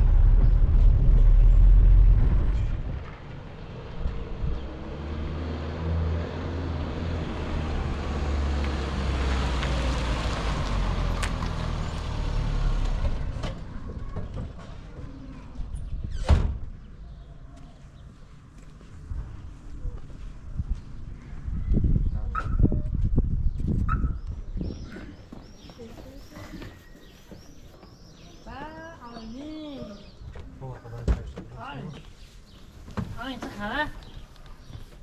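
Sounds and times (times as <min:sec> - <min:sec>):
car engine driving up: 0:00.0 - 0:13.8.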